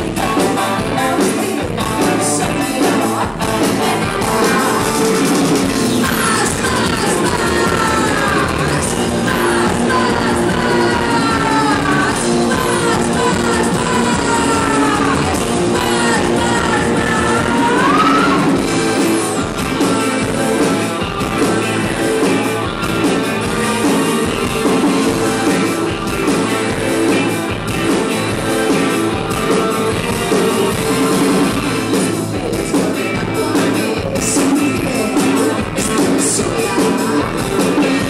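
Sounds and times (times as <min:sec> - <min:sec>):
electric guitar: 0:00.0 - 0:38.0
live rock band playing: 0:00.0 - 0:38.0.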